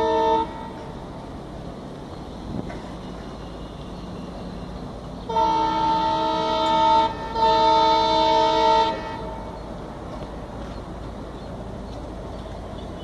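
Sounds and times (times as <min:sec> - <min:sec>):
locomotive horn blasts: 0:00.0 - 0:01.0, 0:03.0 - 0:09.6.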